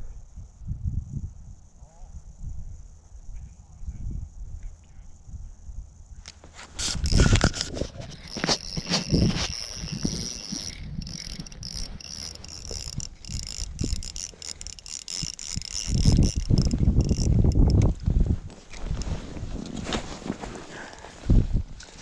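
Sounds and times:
fishing reel whirring: 6.8 - 18.0, 18.6 - 19.2.

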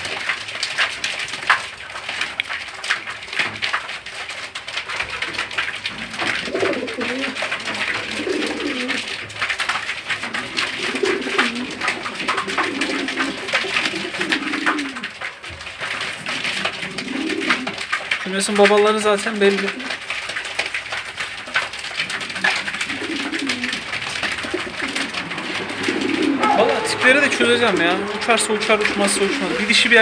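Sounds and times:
pigeons cooing: 4.9 - 9.4, 10.0 - 17.9, 21.9 - 30.0
beaks pecking grain on cardboard: 6.4 - 9.1, 10.2 - 17.9, 22.0 - 30.0.

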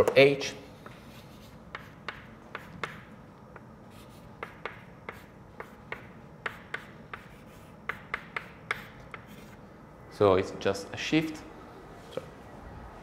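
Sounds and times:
chalk tapping and scratching: 0.7 - 9.6.

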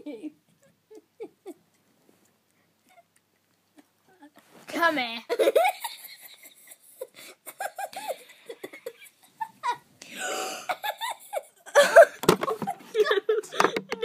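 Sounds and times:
girl giggling and laughing: 0.0 - 1.8, 3.8 - 4.5, 5.3 - 14.0.

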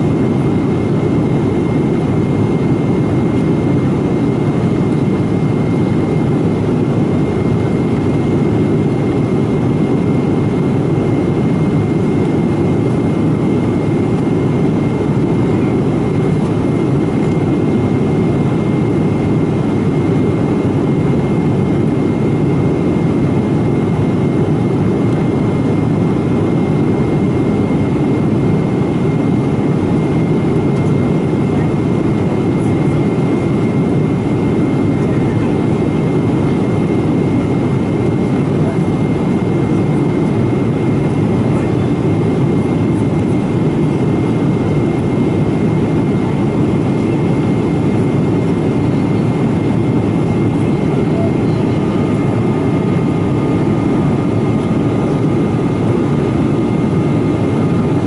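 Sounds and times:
jet engine drone: 0.0 - 58.0.

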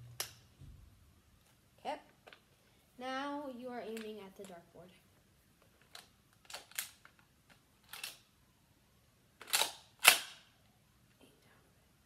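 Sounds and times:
plastic toy blaster clicks: 9.4 - 10.4.

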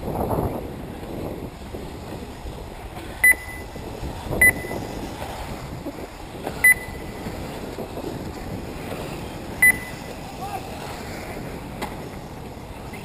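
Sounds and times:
short high electronic beeps: 6.6 - 7.0, 9.6 - 10.0.

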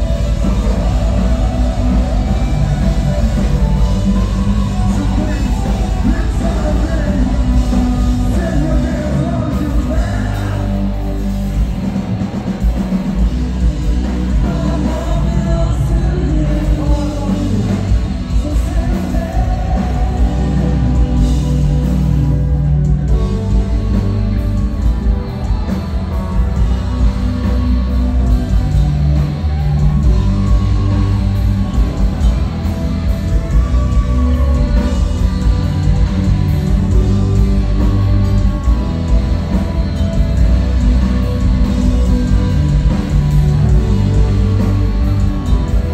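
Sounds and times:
vocalist singing and yelling: 0.0 - 11.5, 13.5 - 22.8
bass: 0.0 - 45.9
distorted electric guitars: 0.0 - 45.9
drums: 0.0 - 45.9
keyboard: 0.0 - 45.9
metal band playing: 0.0 - 45.9.

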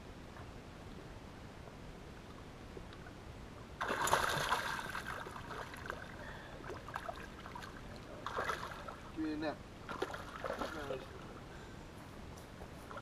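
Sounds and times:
fish splashing in water: 3.8 - 9.1, 9.9 - 10.9
water sloshing and dripping: 3.8 - 9.2, 9.9 - 11.4.

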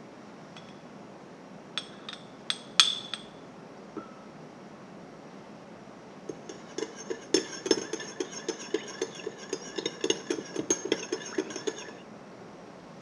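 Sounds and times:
spoon clinking against glass bowl: 6.3 - 12.0.

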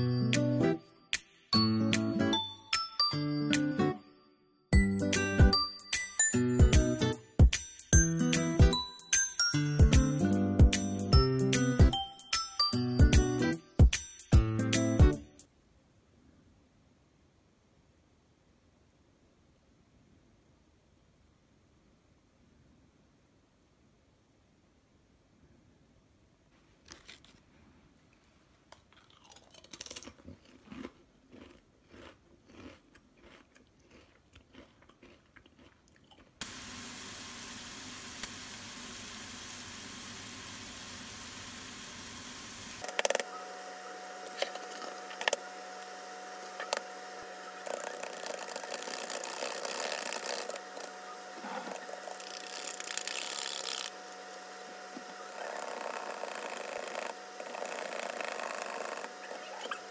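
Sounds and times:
chips crunched and chewed: 26.8 - 27.4, 28.7 - 36.4, 47.6 - 54.0.

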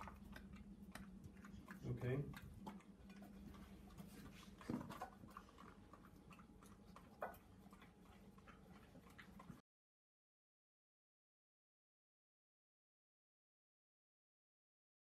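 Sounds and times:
dog licking food: 0.0 - 9.6.

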